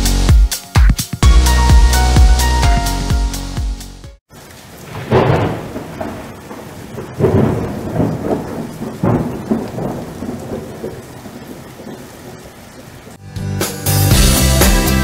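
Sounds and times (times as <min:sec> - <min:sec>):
steady rain: 0:04.2 - 0:13.2
thunder rumbling: 0:04.4 - 0:13.2.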